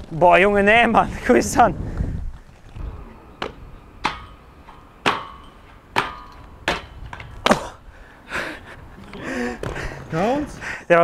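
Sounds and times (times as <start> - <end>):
sharp knocks with ringing tone: 3.4 - 7.2.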